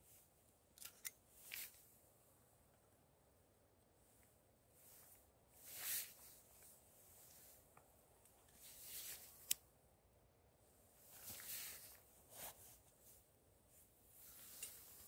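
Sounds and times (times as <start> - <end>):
clothing rustling: 4.1 - 9.6, 10.8 - 15.0.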